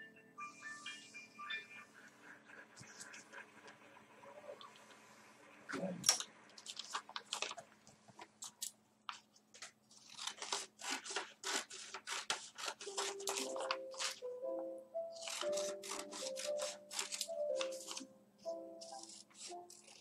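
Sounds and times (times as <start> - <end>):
thin paper crinkling: 6.6 - 14.3, 15.2 - 18.0.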